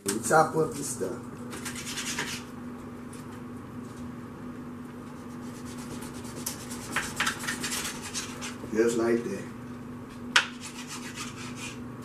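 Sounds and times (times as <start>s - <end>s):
low steady hum: 0.0s - 12.0s
knife scraping cutting board: 1.5s - 2.5s, 5.2s - 8.6s, 10.4s - 11.8s.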